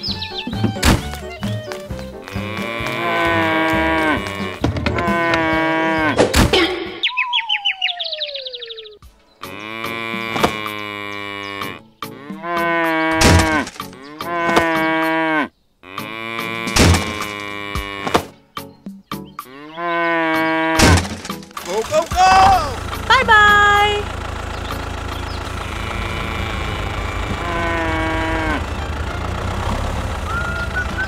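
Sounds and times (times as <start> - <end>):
cow mooing: 2.2 - 6.3, 9.4 - 18.2, 19.4 - 20.9, 25.5 - 30.5
tone sliding down in pitch: 7.0 - 9.0.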